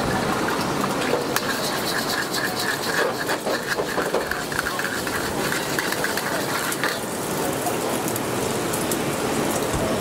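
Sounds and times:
metal spatula scraping wok: 1.0s - 7.2s
egg sizzling in hot oil: 1.0s - 7.5s.

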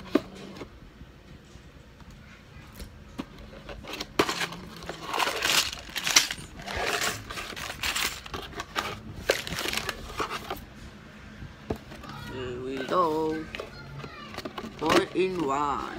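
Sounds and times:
plastic bags crinkling and rustling: 3.5s - 10.7s.

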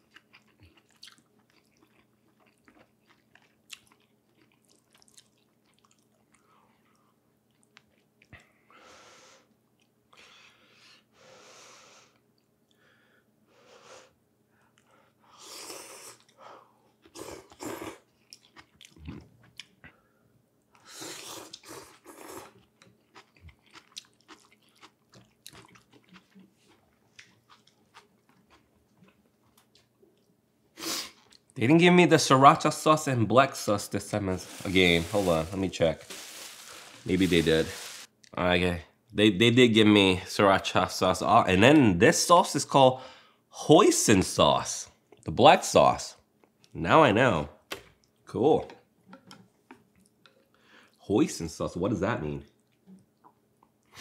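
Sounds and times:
chewing with mouth clicks: 0.0s - 8.4s, 17.0s - 19.9s, 21.3s - 30.3s.

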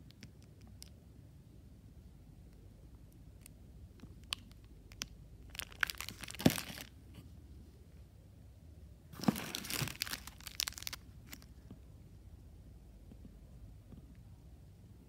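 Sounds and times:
wrappers crinkling: 5.5s - 6.9s, 9.2s - 11.5s.

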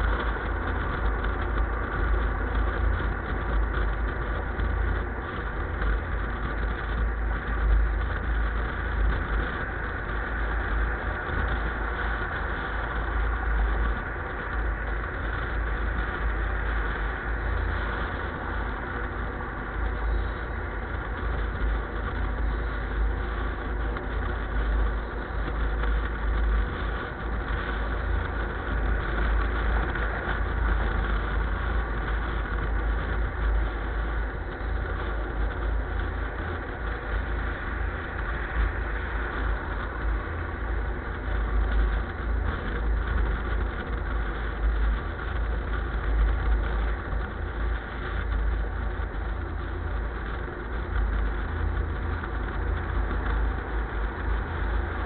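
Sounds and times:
vehicle running low rumble: 0.0s - 55.0s.

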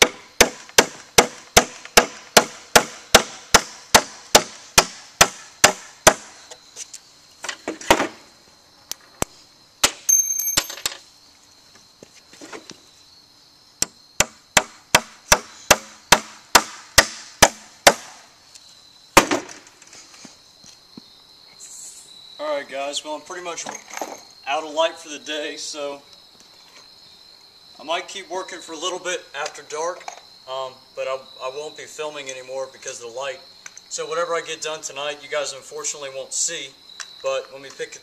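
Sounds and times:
hammer driving nail into wood: 13.8s - 18.1s.

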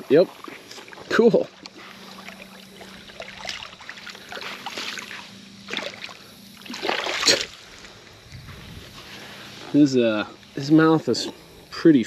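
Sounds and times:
fish splashing in shallow water: 0.3s - 9.5s.

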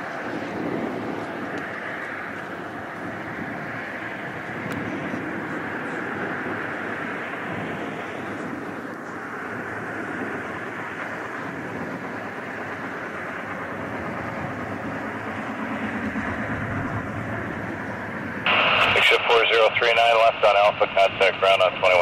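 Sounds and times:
jet engine rumble and whine: 0.0s - 22.0s
radio voice: 18.5s - 22.0s.

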